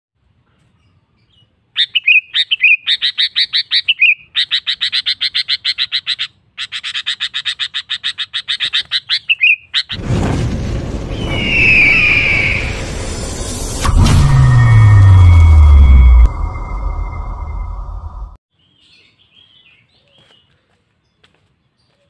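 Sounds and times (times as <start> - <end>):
bird singing sharp repeated notes: 1.2 - 10.0
low rumbling whoosh effect: 10.0 - 18.4.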